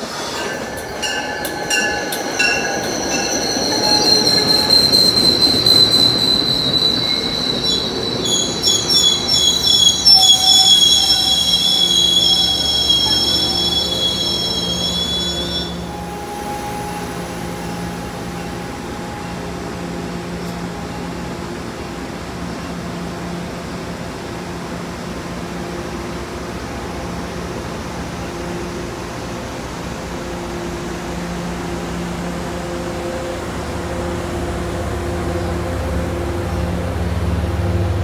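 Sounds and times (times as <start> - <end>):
train wheel and brake squeal: 0.0 - 21.3
standing train humming: 0.0 - 38.0.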